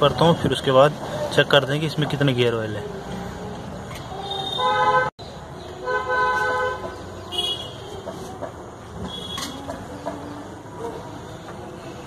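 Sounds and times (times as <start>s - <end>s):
vehicle horn honking: 4.2s - 5.1s, 5.8s - 7.8s, 9.0s - 9.6s.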